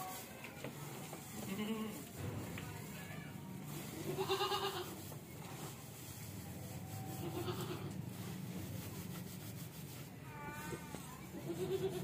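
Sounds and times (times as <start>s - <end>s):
goat bleat: 1.4s - 2.0s, 4.1s - 5.0s, 7.1s - 8.0s, 10.3s - 12.0s.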